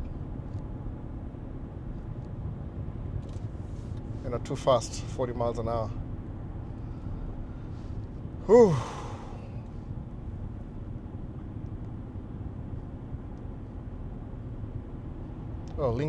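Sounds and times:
car cabin road rumble: 0:00.0 - 0:16.0
person sighing: 0:08.4 - 0:09.5.

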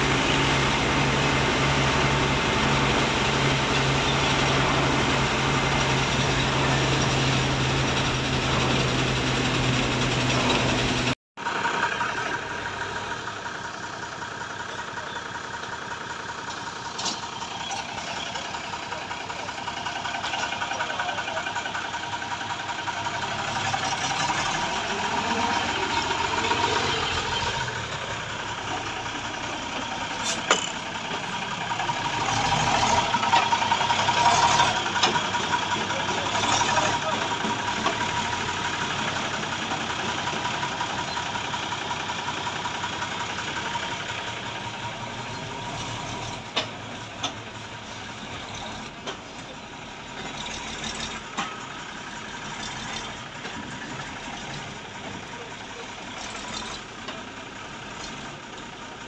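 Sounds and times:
diesel truck engine humming: 0:00.0 - 0:59.0
truck engines idling: 0:00.0 - 0:59.0.

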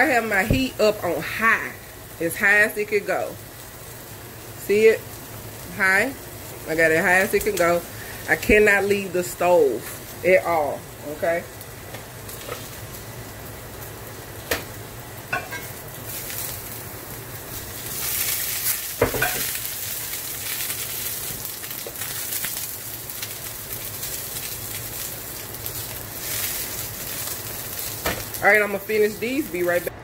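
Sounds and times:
squash sizzling in skillet: 0:00.0 - 0:29.9.

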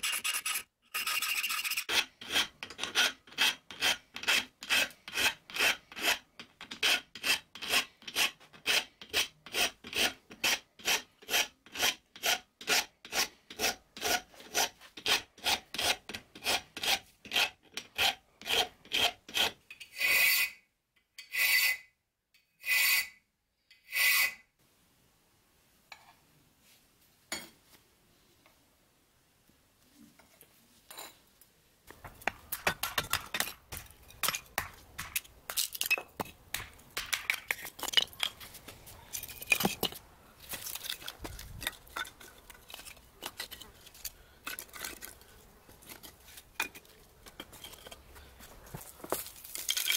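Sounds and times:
file scraping steel blade: 0:00.0 - 0:20.6, 0:21.2 - 0:22.0, 0:22.6 - 0:24.4.

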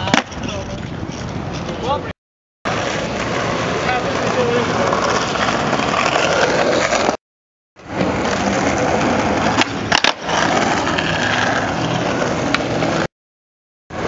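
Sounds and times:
skateboard clacks: 0:00.0 - 0:01.9, 0:07.8 - 0:13.1
skateboard wheels rolling on paving: 0:00.0 - 0:02.1, 0:02.7 - 0:07.2, 0:07.8 - 0:13.1.

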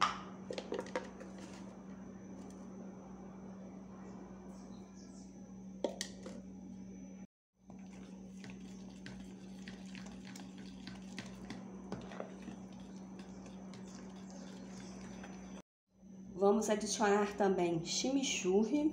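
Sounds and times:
steady low hum: 0:00.0 - 0:18.9
spoon stirring batter in plastic bowl: 0:07.6 - 0:15.6.

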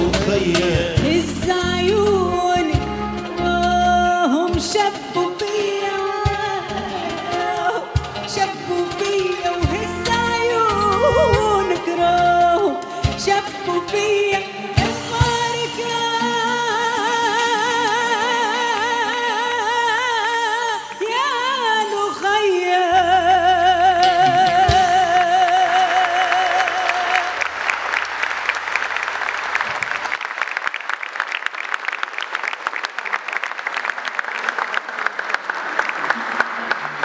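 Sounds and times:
band playing: 0:00.0 - 0:27.3
woman singing with vibrato: 0:00.3 - 0:27.5
audience applause: 0:25.2 - 0:37.0.

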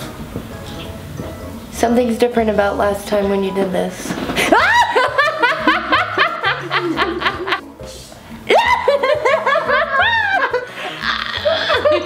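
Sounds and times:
woman laughing hard: 0:04.4 - 0:07.6, 0:08.5 - 0:12.0
woman's high rising cry: 0:08.5 - 0:09.1, 0:10.0 - 0:12.0.

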